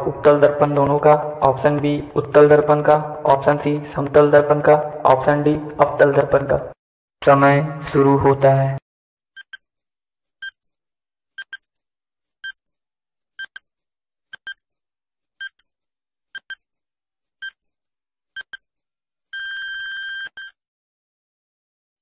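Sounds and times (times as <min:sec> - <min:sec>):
long steady beep: 0:19.4 - 0:20.6.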